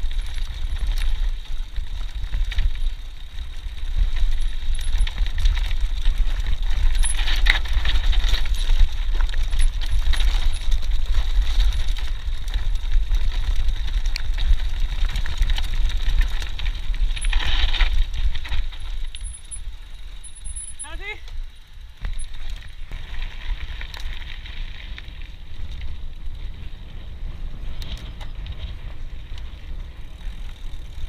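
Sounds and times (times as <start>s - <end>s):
bike rattling: 0.0s - 31.0s
wind buffeting microphone: 22.0s - 31.0s.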